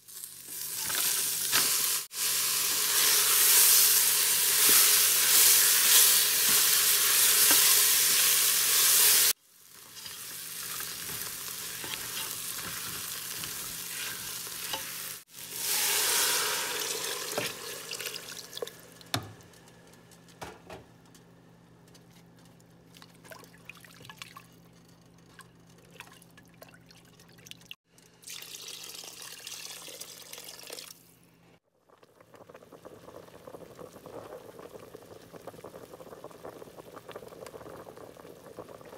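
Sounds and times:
meat sizzling in a pot: 0:00.0 - 0:18.9.

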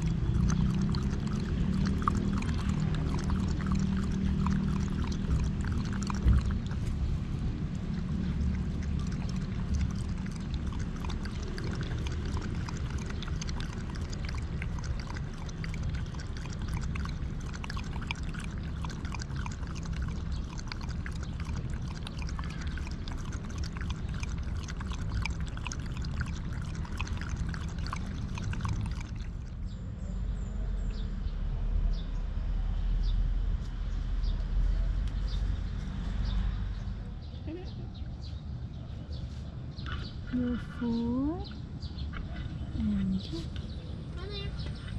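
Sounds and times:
dog lapping water: 0:00.0 - 0:29.8.

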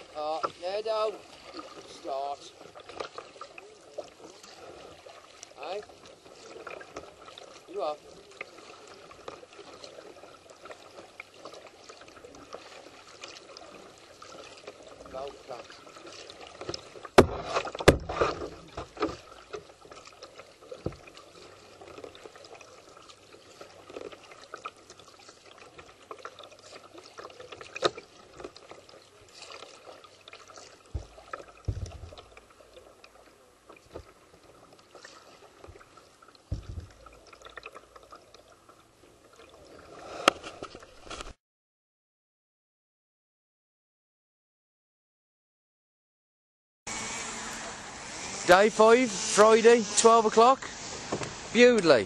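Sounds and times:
paddle strokes splashing: 0:00.0 - 0:41.4, 0:46.9 - 0:52.0
sharp knocks: 0:17.2 - 0:18.5, 0:31.0 - 0:32.3, 0:36.5 - 0:37.0.

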